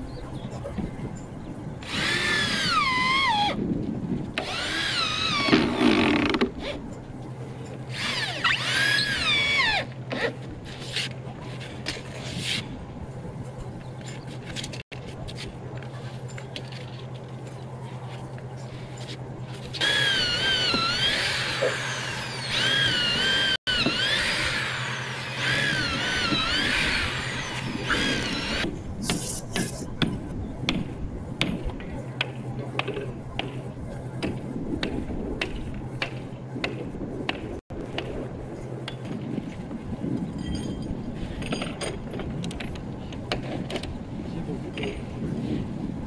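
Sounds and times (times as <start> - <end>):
tools clicking and knocking on wood: 29.0 - 33.6, 40.6 - 44.0.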